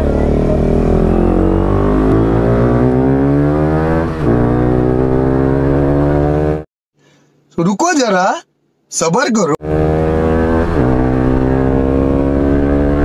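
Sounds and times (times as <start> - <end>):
motorcycle engine accelerating: 0.0 - 6.7, 9.6 - 13.0.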